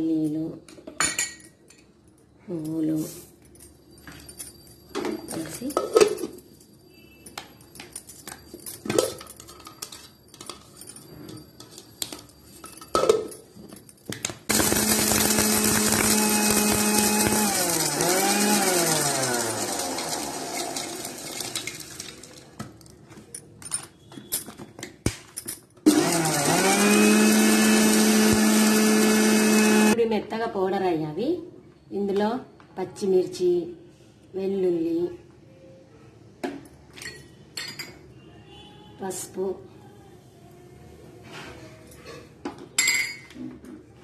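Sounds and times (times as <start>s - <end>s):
mixer grinder grinding nuts: 14.5s - 22.5s, 25.8s - 30.0s.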